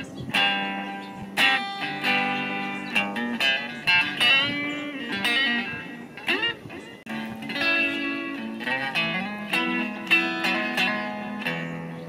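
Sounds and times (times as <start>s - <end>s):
electric guitar notes: 0.0s - 12.0s.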